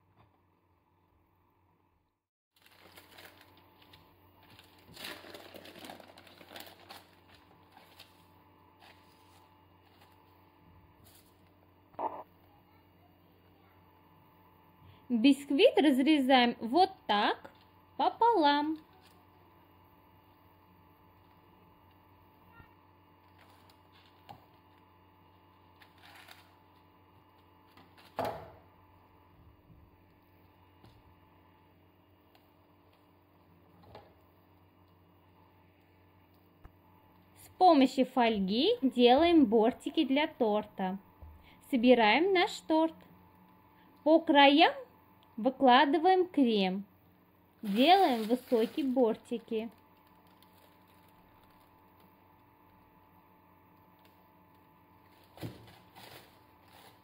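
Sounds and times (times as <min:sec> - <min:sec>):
parchment paper crinkling: 0:02.6 - 0:10.3, 0:23.2 - 0:28.1, 0:47.6 - 0:52.9, 0:53.7 - 0:57.0.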